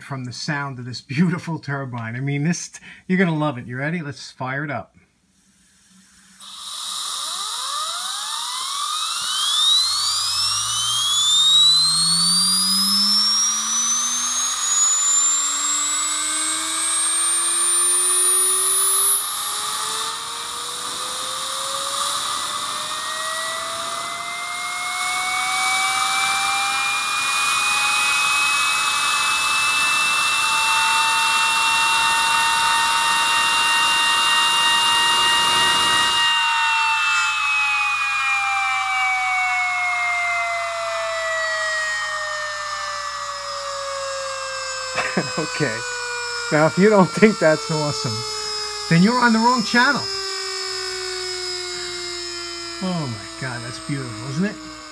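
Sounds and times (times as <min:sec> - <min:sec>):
compressed air hissing: 0:05.2 - 0:07.4
turbine whine rising in pitch: 0:05.4 - 0:54.9.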